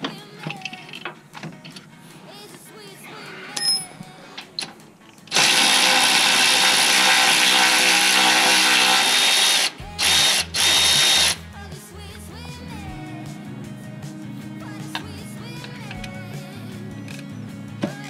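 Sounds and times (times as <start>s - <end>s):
cordless ratchet motor whine: 5.3s - 11.4s.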